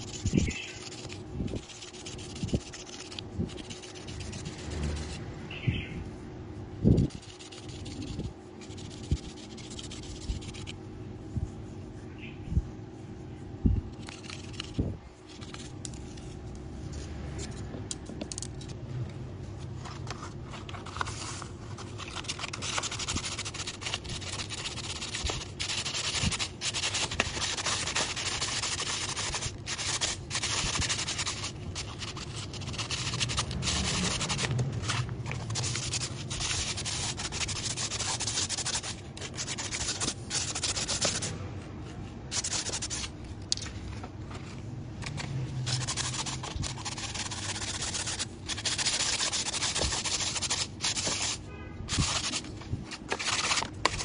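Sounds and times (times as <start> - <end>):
sandpaper scraping bamboo rod: 0.0 - 5.2, 6.9 - 10.8, 20.2 - 41.3, 42.3 - 43.1, 45.1 - 54.0.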